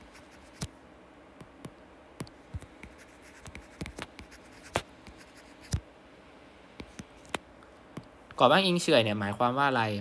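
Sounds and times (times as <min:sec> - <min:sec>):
stylus tapping on tablet screen: 0:01.4 - 0:05.8, 0:06.8 - 0:08.1.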